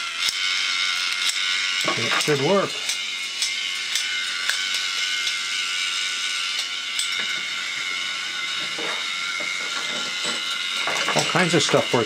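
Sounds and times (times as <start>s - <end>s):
small geared motor whining: 0.0s - 12.0s.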